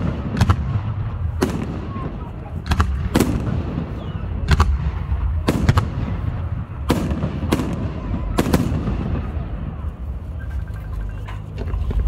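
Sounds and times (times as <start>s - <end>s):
fireworks sharp bangs: 0.0s - 10.3s.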